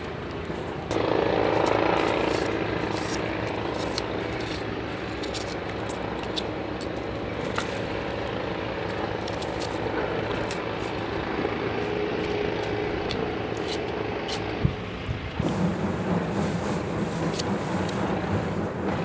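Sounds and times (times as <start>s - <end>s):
low rumbling hum: 0.0s - 19.0s
knife cutting shallot skin: 0.9s - 11.0s, 11.8s - 14.9s, 17.2s - 18.0s.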